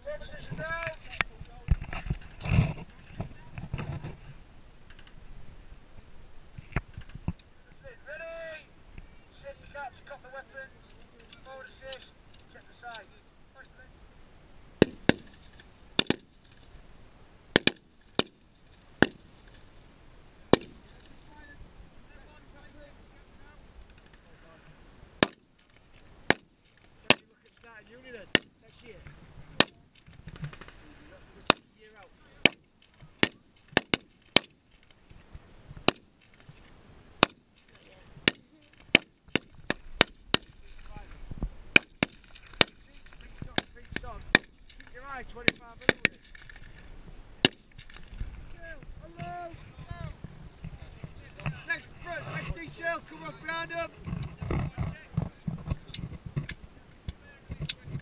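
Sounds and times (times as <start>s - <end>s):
rifle shots: 14.8s - 15.4s, 16.0s - 16.4s, 17.5s - 18.4s, 19.0s - 19.3s, 20.5s - 20.9s, 25.2s - 25.5s, 33.2s - 34.6s, 35.8s - 36.1s, 41.7s - 46.4s, 47.4s - 48.0s.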